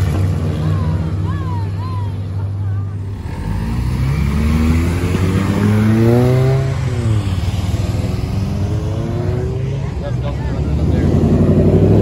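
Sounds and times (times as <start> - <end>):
car engine revving accelerating: 3.0 - 12.0.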